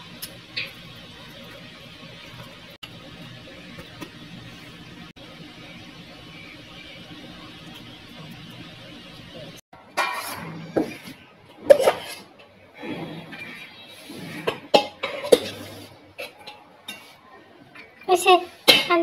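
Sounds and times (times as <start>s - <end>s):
steel bowl and dishes clinking: 9.9s - 18.0s.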